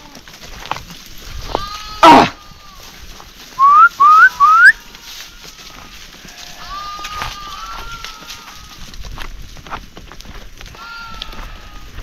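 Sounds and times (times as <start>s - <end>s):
sheep bleating: 1.2s - 3.0s, 4.4s - 9.0s, 10.7s - 12.0s
herder whistling: 3.6s - 4.8s.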